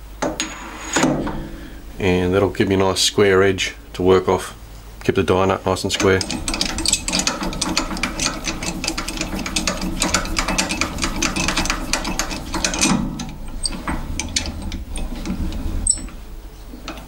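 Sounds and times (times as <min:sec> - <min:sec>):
steady low hum: 0:00.0 - 0:17.0
mechanical clicking and rattling: 0:05.9 - 0:17.0.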